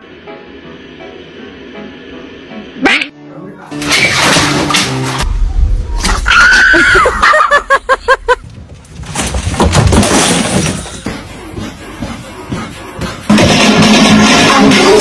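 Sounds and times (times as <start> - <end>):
noisy crash: 13.3 - 15.0.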